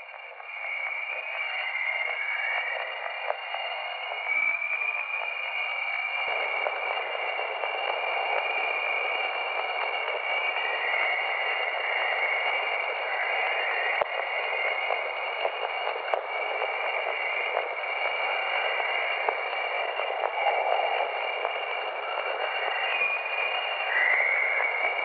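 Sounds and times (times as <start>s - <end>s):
faint crackles: 0.0s - 25.0s
steady static hiss: 0.0s - 25.0s.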